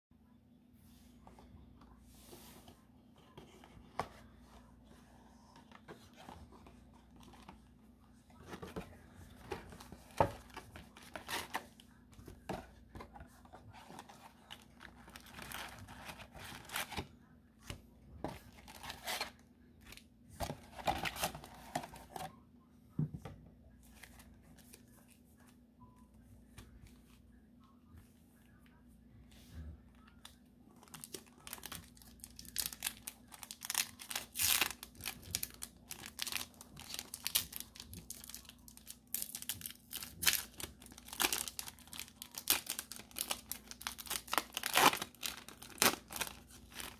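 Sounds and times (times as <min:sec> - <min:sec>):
cardboard and paper rustling: 0:01.2 - 0:22.3.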